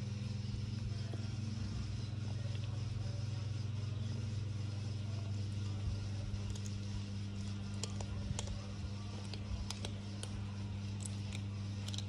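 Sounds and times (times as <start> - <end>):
steady low hum: 0.0 - 12.0
cat chewing food: 5.6 - 12.0.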